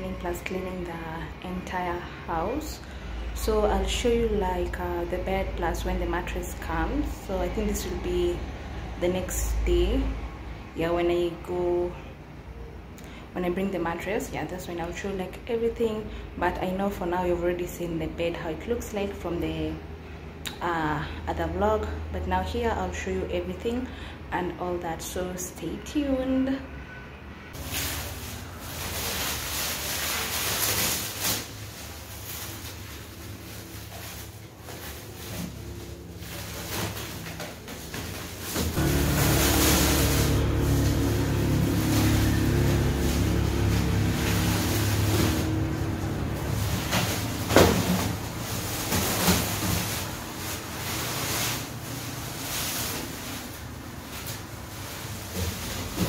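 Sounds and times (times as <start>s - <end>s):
plastic wrap crinkling: 27.6s - 56.0s.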